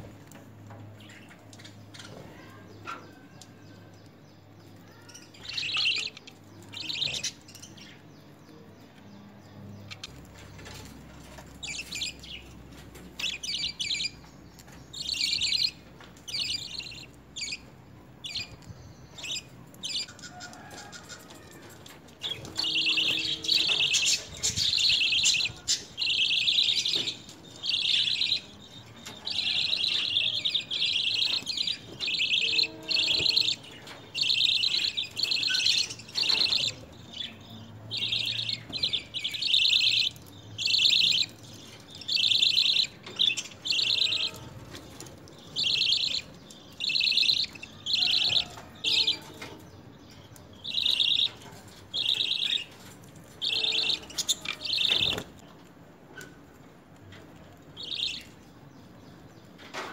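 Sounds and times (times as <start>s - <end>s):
budgerigars chattering: 42.0s - 44.4s, 45.6s - 49.2s, 50.7s - 51.4s.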